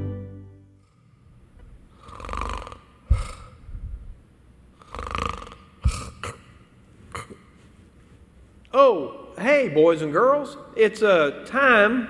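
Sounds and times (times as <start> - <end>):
man snoring: 1.9 - 3.6, 4.8 - 6.4
sharp puff of breath: 3.0 - 3.7.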